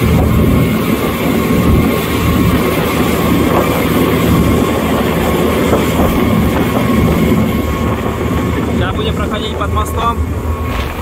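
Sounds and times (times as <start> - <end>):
motor boat engine drone: 0.0 - 11.0
water rushing along hull: 0.0 - 11.0.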